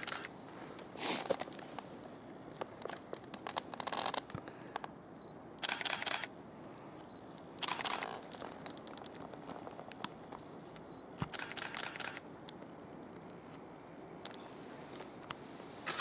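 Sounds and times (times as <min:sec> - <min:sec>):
camera shutter bursts: 0:00.0 - 0:00.3, 0:05.6 - 0:06.3, 0:07.6 - 0:08.2, 0:11.2 - 0:12.2
single shutter clicks: 0:05.6 - 0:06.3.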